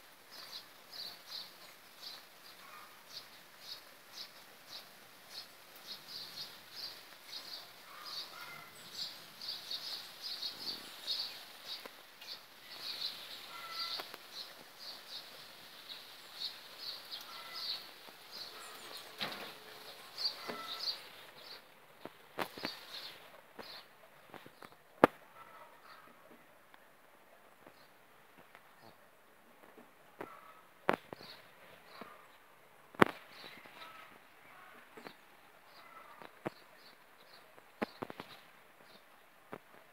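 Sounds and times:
rain on wet asphalt: 0.0 - 25.3
birds chirping: 0.1 - 26.4, 27.6 - 39.8.

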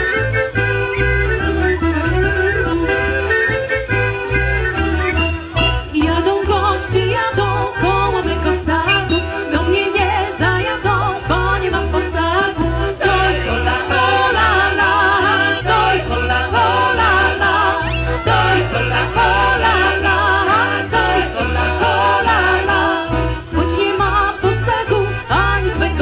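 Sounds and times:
band playing: 0.0 - 26.0
women singing together: 9.6 - 26.0.

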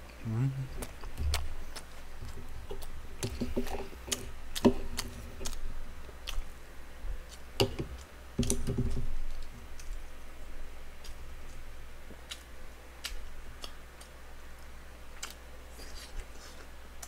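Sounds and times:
wet mouth clicks chewing: 0.8 - 5.6, 6.2 - 6.5.

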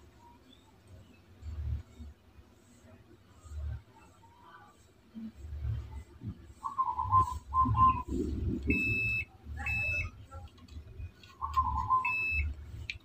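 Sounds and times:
low wavering tones: 5.6 - 9.9
multimeter beeping: 7.2 - 10.2, 11.3 - 12.9.

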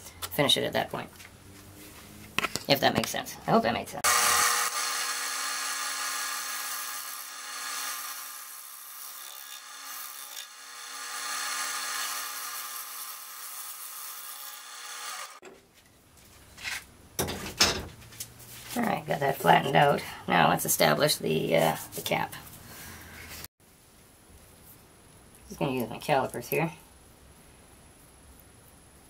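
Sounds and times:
lathe humming: 4.0 - 8.8.

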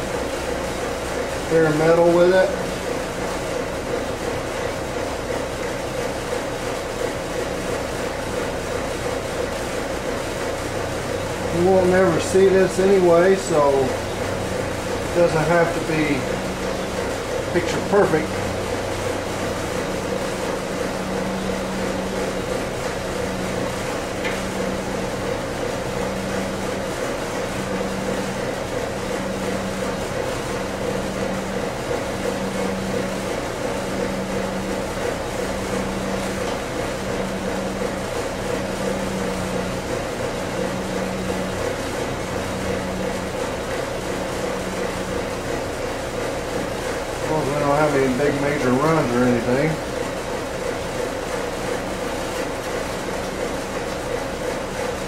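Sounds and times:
steady mechanical hum: 0.0 - 55.0.

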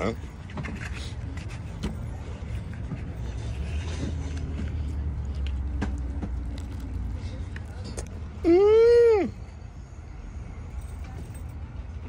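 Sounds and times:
man chewing sandwich: 0.8 - 8.4.

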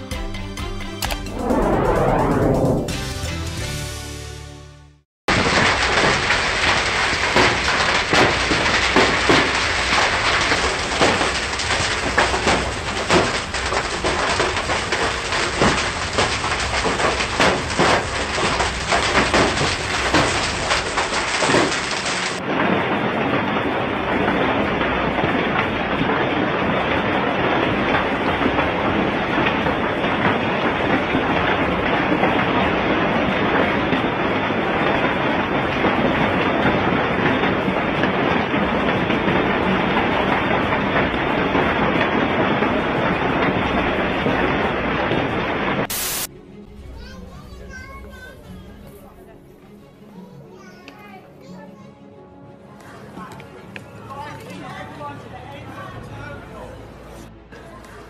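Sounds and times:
music: 0.0 - 5.0, 46.3 - 58.0
sharp hailstone hits: 5.3 - 34.0, 45.8 - 46.3
hail and rain pelting the ground: 5.3 - 49.1, 52.7 - 57.0.

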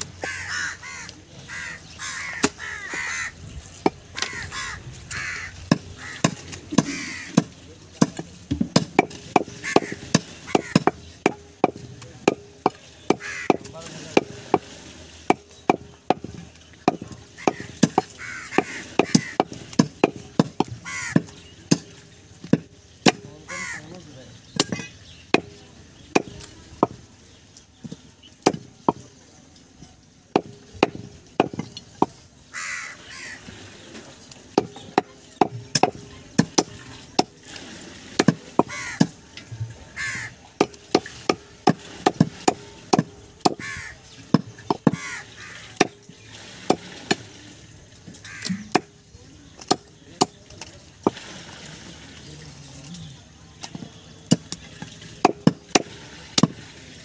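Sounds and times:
crows cawing: 0.0 - 3.4, 4.1 - 7.5, 9.4 - 11.0, 13.0 - 13.7, 17.3 - 19.6, 20.8 - 21.4, 23.4 - 24.0, 24.6 - 25.0, 32.5 - 33.6, 38.6 - 39.2, 39.9 - 40.5, 43.4 - 46.0, 48.2 - 49.0
cleaver chopping meat on wood: 5.2 - 14.7, 15.3 - 23.3, 24.5 - 27.0, 27.8 - 29.1, 30.3 - 32.2, 34.5 - 37.4, 38.2 - 39.2, 40.6 - 45.2, 45.8 - 46.0, 48.4 - 50.4, 55.2 - 56.6.

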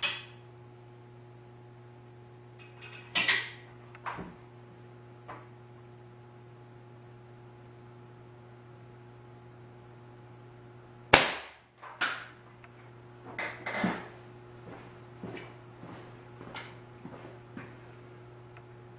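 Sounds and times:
air gun shot crack: 11.1 - 11.7.

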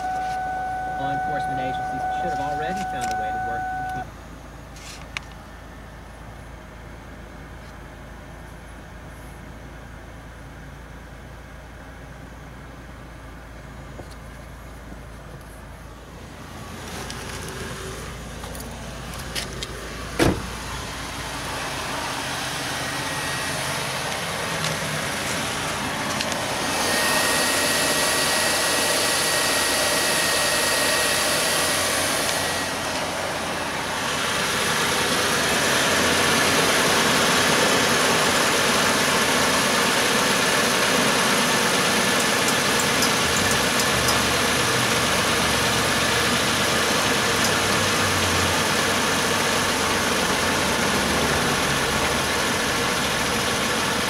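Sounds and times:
car engine idling: 0.0 - 54.0
sharp thump: 20.2 - 20.6.

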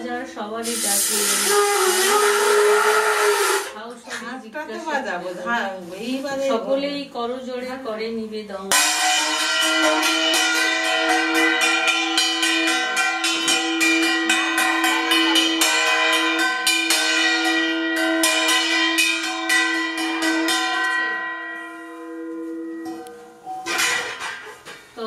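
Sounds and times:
hand bell ringing: 8.8 - 23.9.

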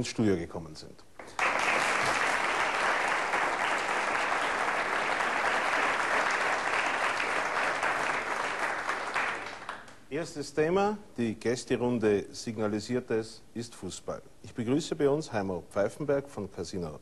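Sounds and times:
audience applauding: 1.2 - 10.0.

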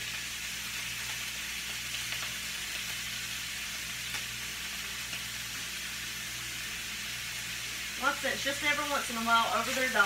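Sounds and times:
meat sizzling in a skillet: 0.0 - 10.0.

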